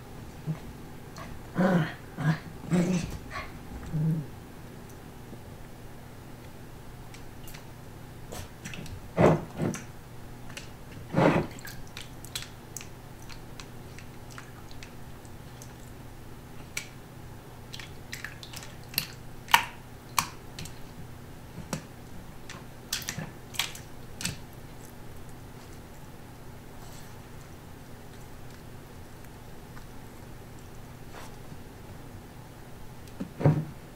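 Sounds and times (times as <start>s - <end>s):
water slapping and splashing: 17.7s - 20.8s.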